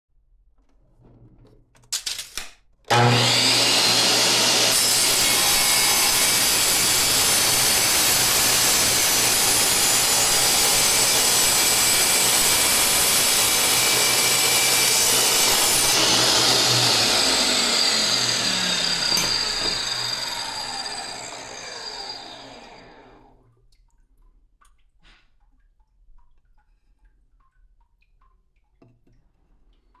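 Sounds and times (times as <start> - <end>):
wet tile saw cutting tile: 2.1 - 23.3
saw blade winding down whine: 2.9 - 23.3.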